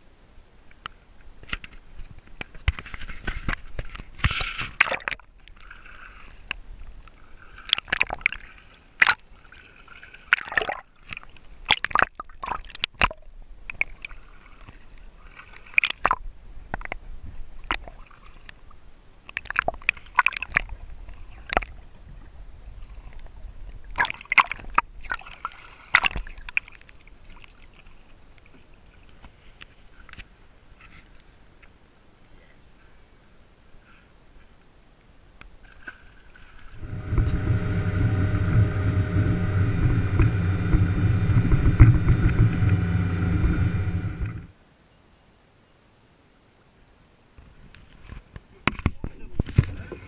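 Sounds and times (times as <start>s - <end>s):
sea water sloshing and gurgling: 2.8s - 16.2s, 19.3s - 29.6s.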